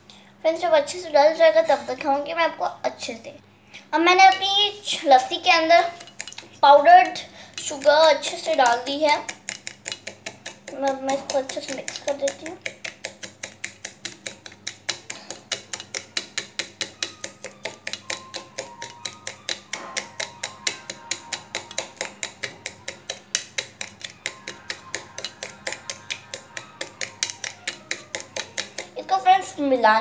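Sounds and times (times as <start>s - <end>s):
metal spoon clinking in tumbler: 5.8s - 11.5s, 13.5s - 29.0s.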